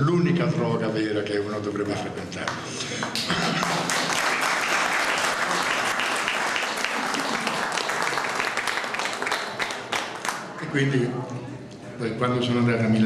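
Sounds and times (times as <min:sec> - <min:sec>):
audience applauding: 0:02.5 - 0:10.6.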